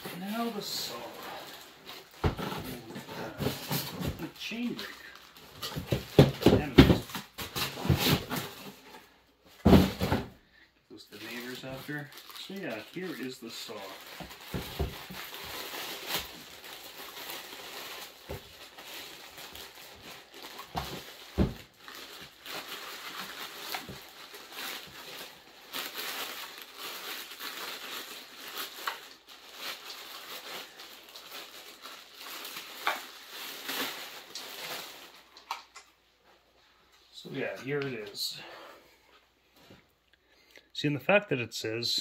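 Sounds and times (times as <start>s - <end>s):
plastic bag rustling: 0.0s - 8.9s, 11.2s - 35.6s.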